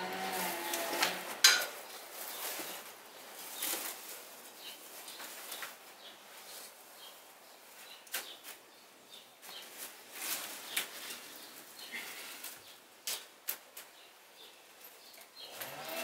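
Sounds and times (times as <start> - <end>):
fork scraping through straw bedding: 0.0 - 1.4.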